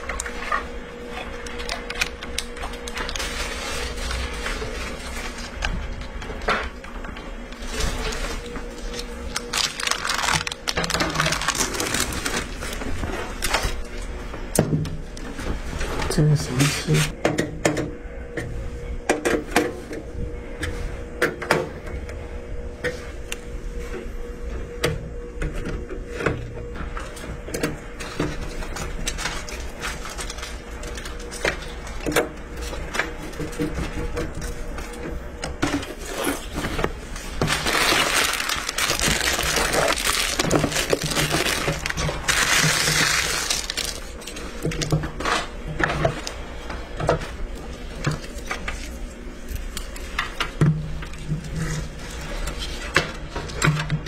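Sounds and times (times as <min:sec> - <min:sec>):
cardboard packaging rustling: 0:00.0 - 0:06.4, 0:07.6 - 0:14.0, 0:28.0 - 0:35.1, 0:35.8 - 0:46.5.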